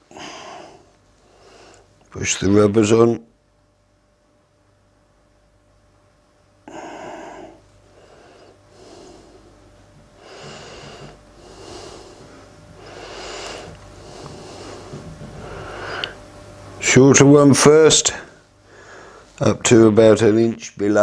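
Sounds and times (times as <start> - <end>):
man breathing heavily through nose: 0.0 - 1.9, 6.6 - 16.2, 18.3 - 19.4.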